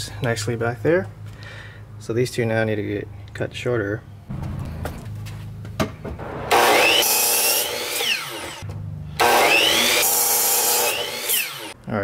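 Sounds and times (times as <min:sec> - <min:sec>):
miter saw whining: 0:06.2 - 0:08.6, 0:09.2 - 0:11.8
saw cutting wooden board: 0:06.2 - 0:08.6, 0:09.2 - 0:11.8.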